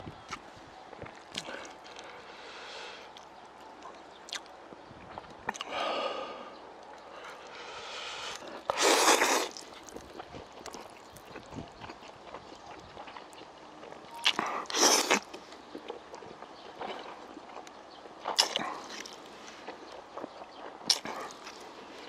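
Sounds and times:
person slurping noodles: 7.8 - 9.8, 14.2 - 15.3.

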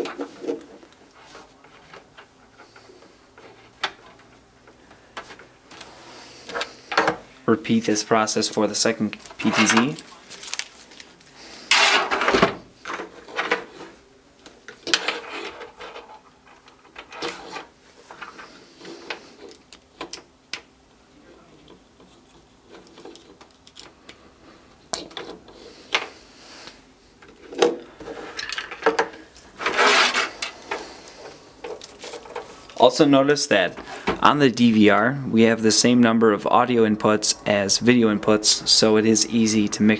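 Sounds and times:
cables rustling and rubbing: 0.0 - 6.9, 8.2 - 20.1, 21.3 - 35.0
scraping rustle: 29.4 - 32.9.

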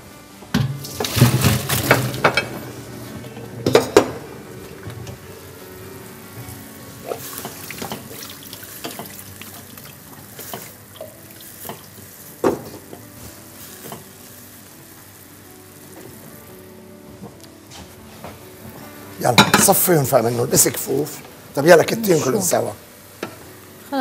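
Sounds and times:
steady cooking hiss: 0.0 - 24.0
utensil clinking against pots: 7.0 - 12.7, 19.3 - 19.8.

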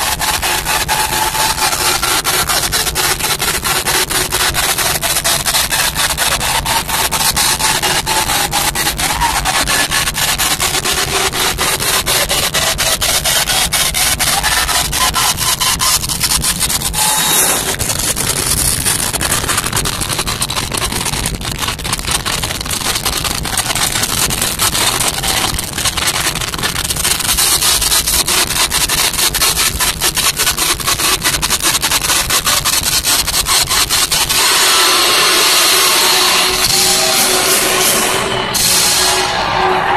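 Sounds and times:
distorted live rock band: 0.0 - 39.9
bright wash with held note: 34.5 - 39.9.

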